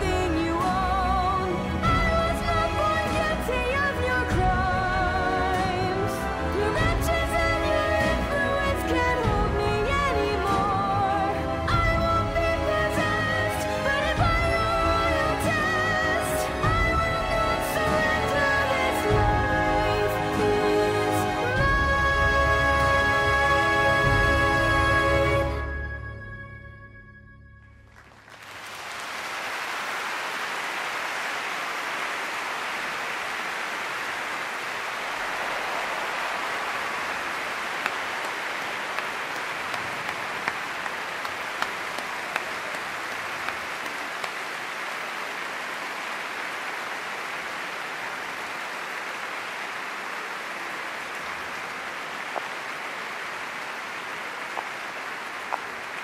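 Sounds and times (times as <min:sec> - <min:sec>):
large audience applauding: 0:27.8 - 0:56.0.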